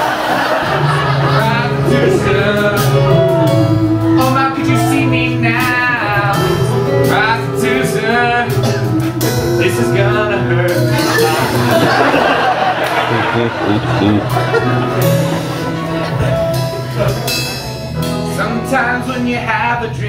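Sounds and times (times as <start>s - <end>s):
instrumental accompaniment: 0.0s - 20.0s
man singing: 1.0s - 12.2s, 18.2s - 20.0s.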